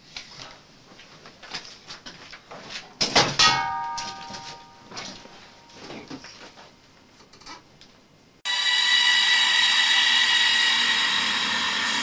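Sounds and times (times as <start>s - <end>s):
loud metallic clang ringing: 3.1s - 5.8s.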